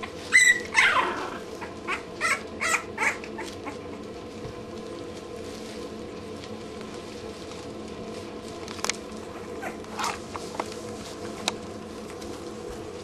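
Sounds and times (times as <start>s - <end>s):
puppies squeaking: 0.0s - 3.8s
steady low hum: 0.0s - 13.0s.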